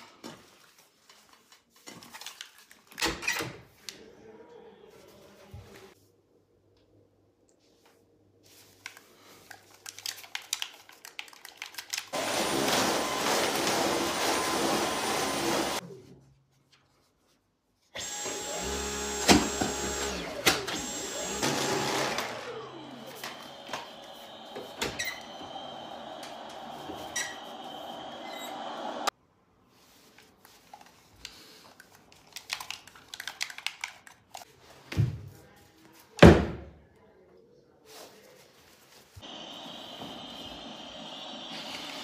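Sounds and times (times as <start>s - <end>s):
stick vacuum cleaner running: 12.1s - 15.8s, 18.0s - 29.1s, 39.2s - 42.0s.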